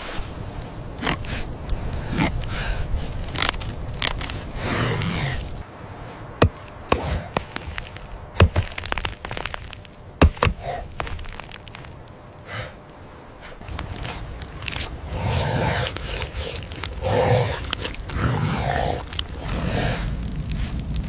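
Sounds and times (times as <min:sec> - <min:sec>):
axe striking dry wood: 0:06.4 - 0:11.4.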